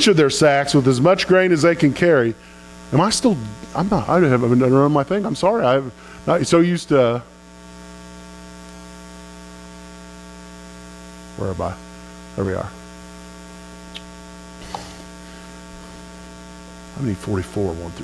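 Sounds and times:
electrical mains hum: 0:00.0 - 0:18.0
man murmuring: 0:03.2 - 0:05.6.

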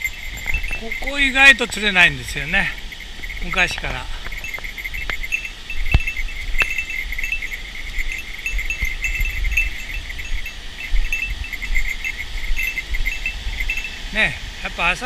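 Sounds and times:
high-pitched chirping trills: 0:00.0 - 0:14.3.

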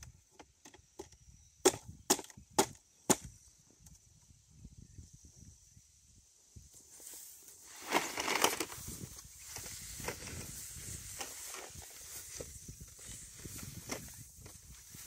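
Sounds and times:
plastic pipe scraping over grass: 0:07.1 - 0:15.0.

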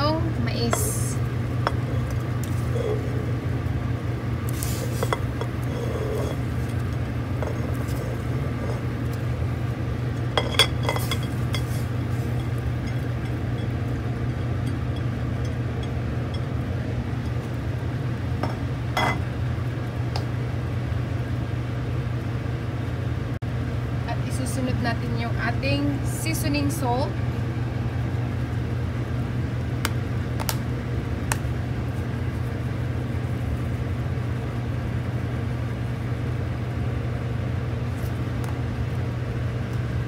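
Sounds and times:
steady low hum: 0:00.0 - 0:40.0
plate clinking on pot: 0:10.4 - 0:11.8, 0:18.4 - 0:19.2.

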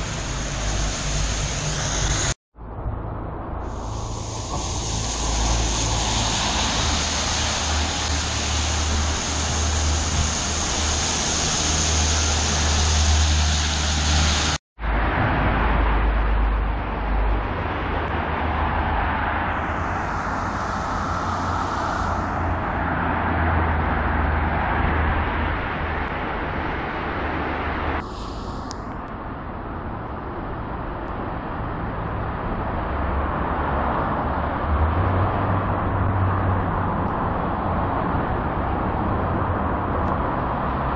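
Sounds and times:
car tyres swishing on wet road: 0:00.0 - 0:02.4, 0:03.6 - 0:29.0
heavy rain: 0:00.0 - 0:02.4, 0:03.7 - 0:16.4
low rumble: 0:00.0 - 0:17.7
traffic on a wet road: 0:00.0 - 0:40.9.

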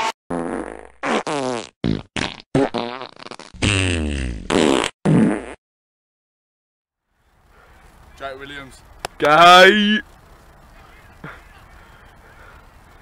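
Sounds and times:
comic buzzy blasts: 0:00.0 - 0:05.6.

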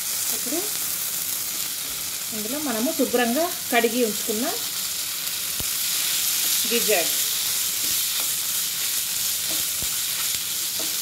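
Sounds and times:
food sizzling in hot oil: 0:00.0 - 0:11.0
spatula scraping a pan: 0:05.8 - 0:11.0.

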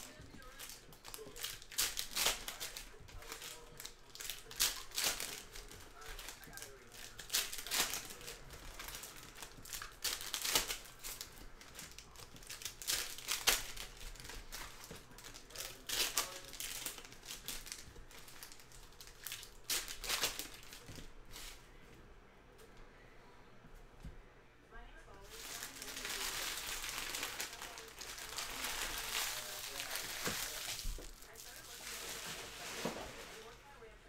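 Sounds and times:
foil wrappers crinkling: 0:00.0 - 0:21.6, 0:25.2 - 0:33.8.

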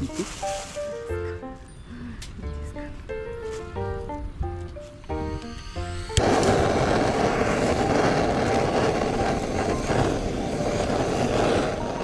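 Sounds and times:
butane torch flame hissing: 0:04.9 - 0:12.0.

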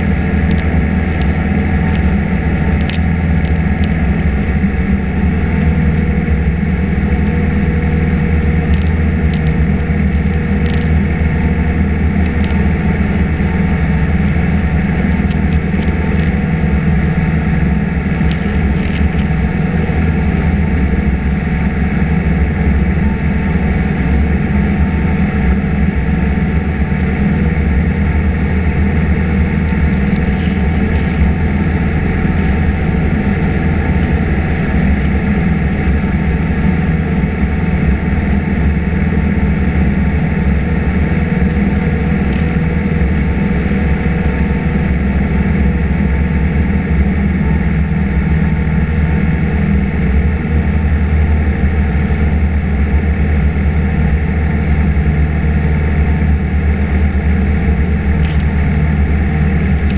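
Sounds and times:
propeller plane engine drone in cabin: 0:00.0 - 0:59.9.

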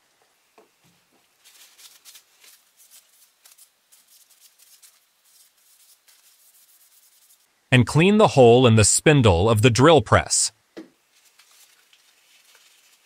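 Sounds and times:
paper towel rubbing metal: 0:01.5 - 0:07.5.

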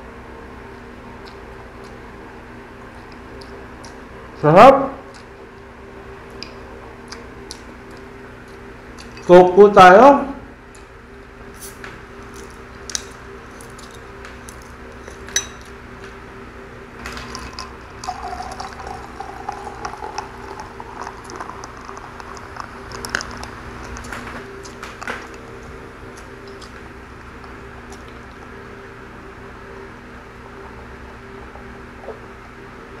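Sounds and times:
fizzing soda: 0:17.1 - 0:23.6
cola pouring into a glass: 0:17.1 - 0:24.0.

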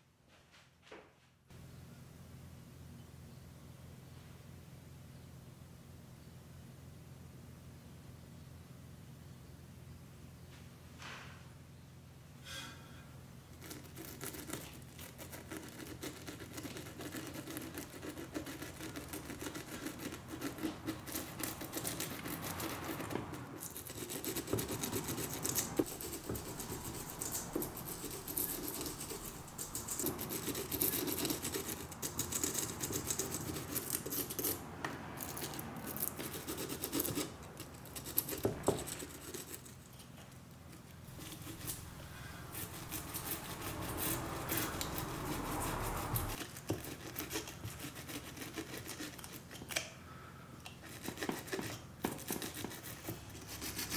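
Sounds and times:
wire brush scratching wood: 0:13.6 - 0:34.6, 0:35.2 - 0:40.2, 0:40.8 - 0:49.8, 0:50.8 - 0:53.9.

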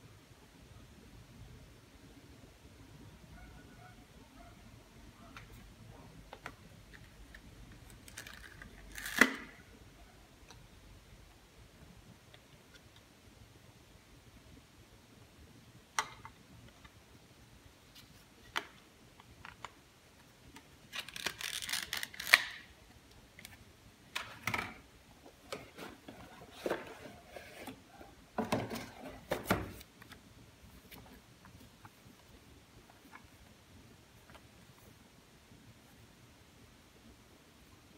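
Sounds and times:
plastic crinkling: 0:20.9 - 0:22.7
plastic packaging clicks: 0:20.9 - 0:22.7.

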